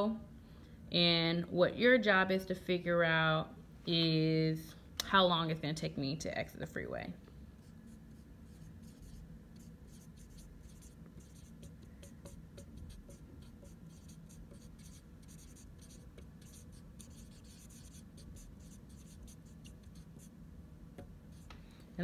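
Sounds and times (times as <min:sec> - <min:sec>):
faint low hum: 0:00.0 - 0:22.0
marker writing on whiteboard: 0:07.6 - 0:20.3.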